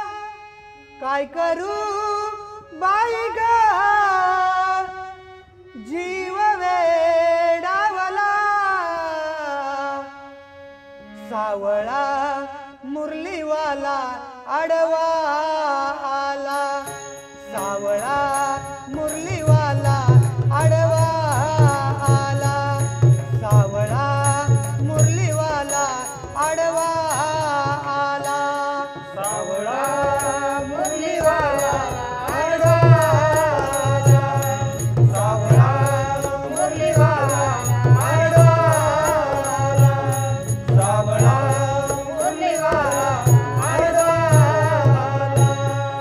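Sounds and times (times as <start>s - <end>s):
harmonium: 0.0s - 46.0s
person singing: 11.1s - 46.0s
pakhwaj drum beats: 16.4s - 46.0s
high ticking keeping time: 16.5s - 46.0s.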